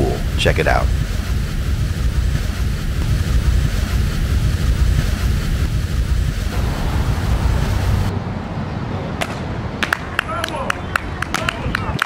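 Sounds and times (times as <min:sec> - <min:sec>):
low rumbling outdoor noise: 0:00.0 - 0:12.0.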